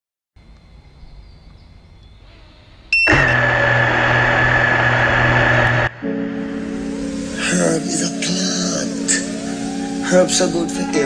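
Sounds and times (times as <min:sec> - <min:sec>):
drone motors whining: 0:02.9 - 0:07.2
short beep: 0:03.0 - 0:03.5.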